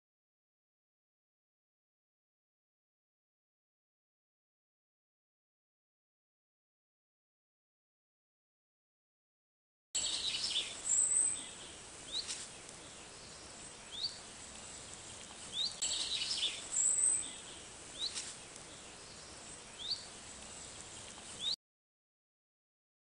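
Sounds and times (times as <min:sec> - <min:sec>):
small birds chirping: 0:10.0 - 0:21.6
steady hiss: 0:10.0 - 0:21.6.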